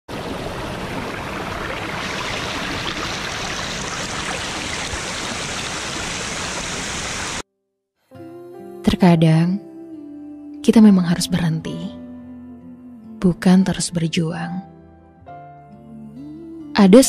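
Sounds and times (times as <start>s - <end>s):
stream rushing over rocks: 0.1s - 7.4s.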